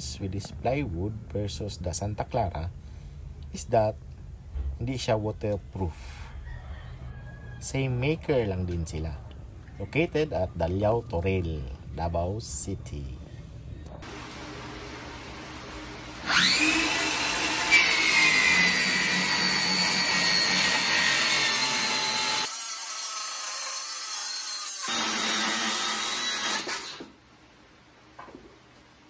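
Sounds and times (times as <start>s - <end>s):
circular saw whine: 14.0s - 22.5s
circular saw cutting plywood: 15.9s - 27.1s.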